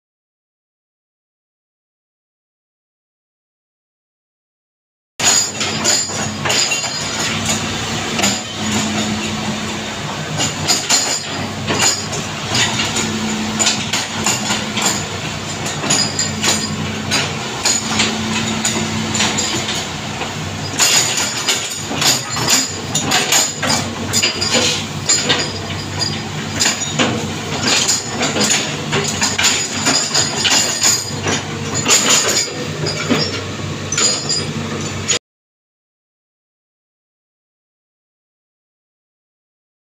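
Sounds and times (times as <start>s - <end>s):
excavator diesel engine humming: 5.2s - 35.2s
sharp metallic clanks: 5.2s - 35.2s.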